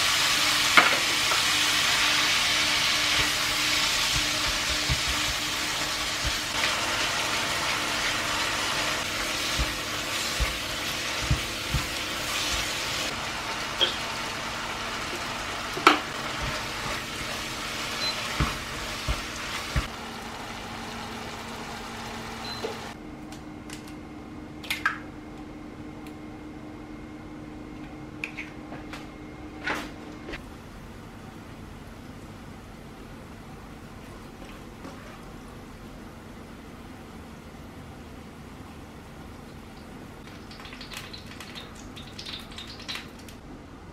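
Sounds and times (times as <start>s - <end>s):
meat sizzling in frying pan: 0.0s - 22.9s
spatula stirring and scraping: 9.0s - 13.1s.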